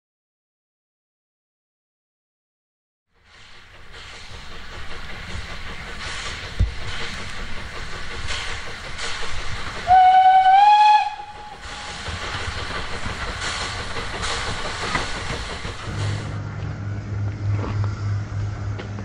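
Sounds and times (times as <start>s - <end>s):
steam locomotive hissing: 3.2s - 19.0s
steam whistle blast: 9.8s - 11.8s.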